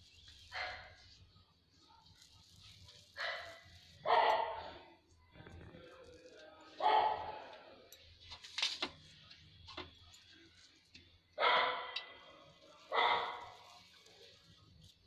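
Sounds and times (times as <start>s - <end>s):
dog barking: 0.5s - 1.1s, 3.1s - 4.8s, 6.8s - 7.5s, 11.4s - 12.2s, 12.9s - 13.8s.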